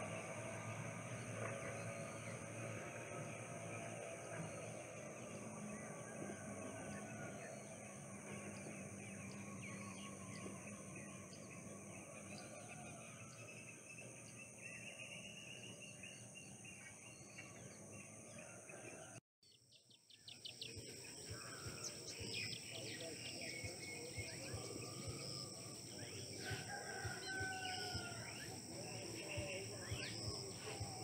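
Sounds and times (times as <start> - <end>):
steady high-pitched hiss: 20.6 - 31.0.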